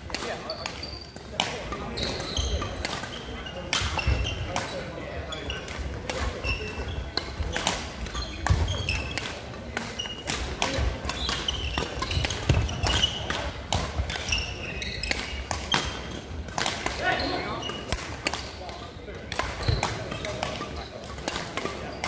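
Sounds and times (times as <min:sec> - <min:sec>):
rackets hitting shuttlecocks: 0:00.1 - 0:22.0
shoes squeaking on wooden floor: 0:01.9 - 0:07.3, 0:07.9 - 0:09.3, 0:09.9 - 0:16.2.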